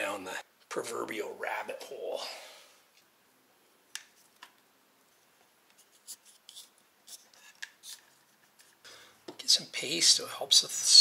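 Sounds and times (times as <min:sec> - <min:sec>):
wires being twisted: 0:03.9 - 0:04.6, 0:05.6 - 0:08.8.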